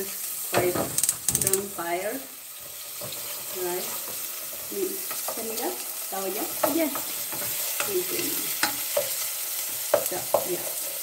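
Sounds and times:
onions sizzling in hot oil: 0.0 - 11.0.

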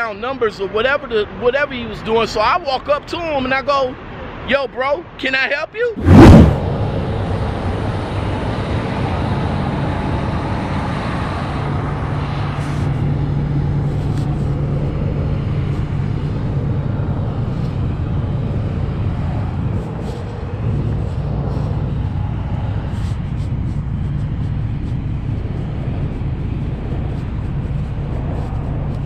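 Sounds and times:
diesel truck engines idling: 6.7 - 29.0.

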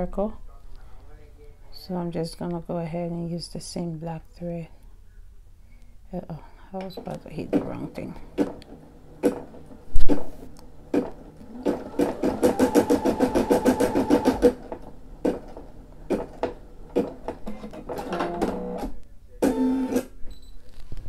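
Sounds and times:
embroidery machine needle strokes: 10.9 - 17.4
loud knock: 10.9 - 18.6.

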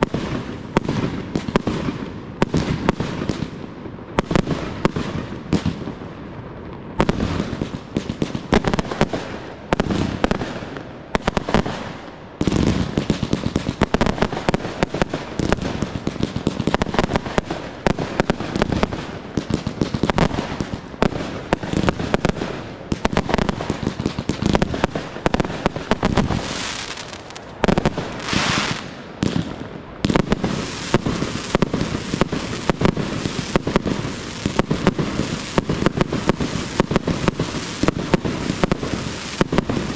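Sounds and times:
fireworks bangs: 0.0 - 39.9
fireworks hissing: 24.4 - 39.9.

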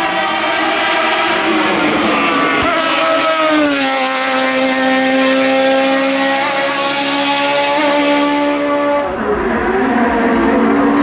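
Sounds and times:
race car engine passing by: 0.0 - 11.0.

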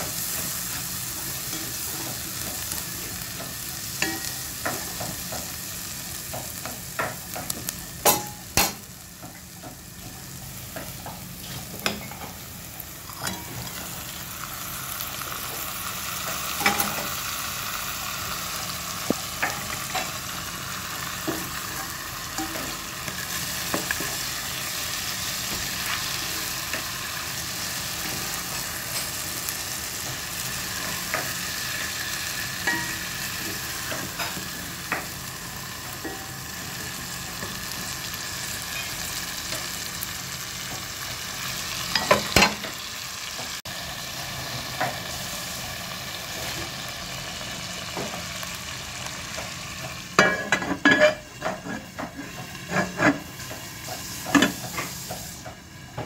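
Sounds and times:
onion and garlic sizzling in oil: 0.0 - 56.0
utensil scraping the pan: 49.8 - 55.5.

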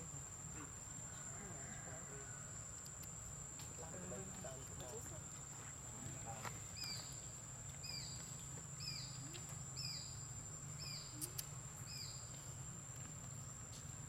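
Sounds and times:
bird chirping: 6.8 - 7.2, 7.8 - 10.2, 10.8 - 12.4.

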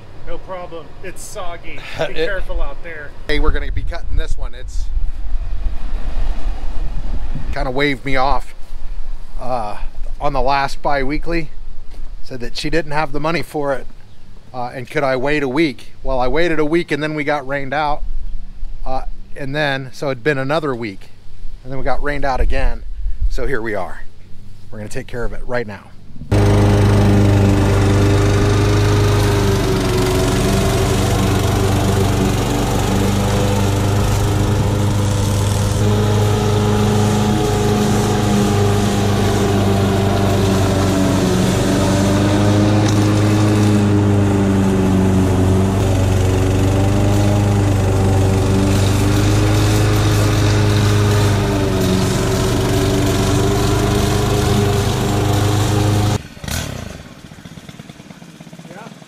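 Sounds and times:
lawn mower engine cutting grass: 26.3 - 59.0.

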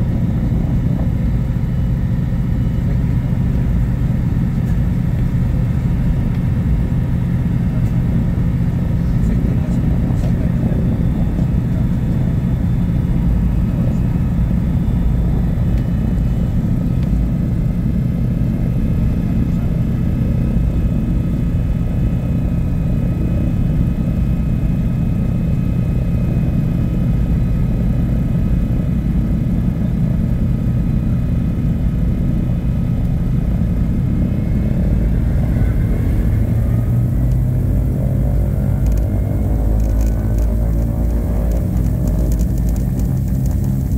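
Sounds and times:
propeller plane engines rumbling: 0.0 - 43.9.

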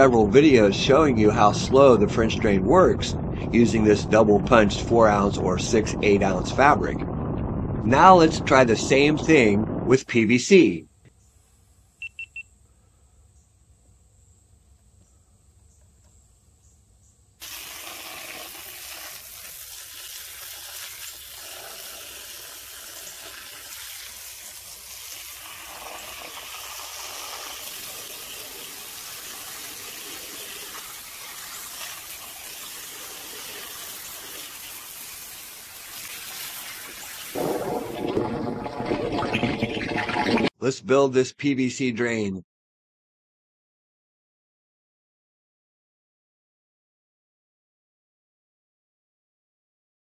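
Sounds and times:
water rushing: 17.4 - 40.5.

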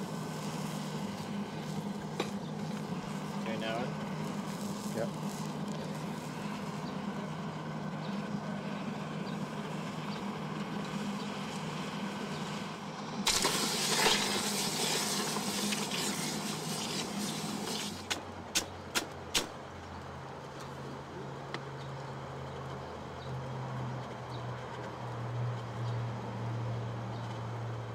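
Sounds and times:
hot steel sizzling in water: 0.0 - 6.8, 13.2 - 18.7
steady low hum: 0.0 - 21.5.

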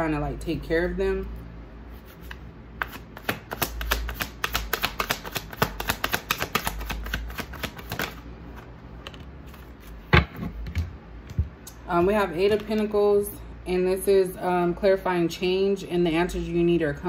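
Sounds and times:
cards being shuffled: 2.0 - 10.6.

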